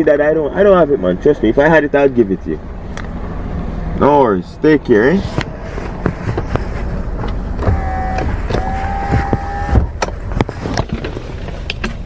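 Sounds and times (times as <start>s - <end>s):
car power window motor whining: 7.1s - 10.8s.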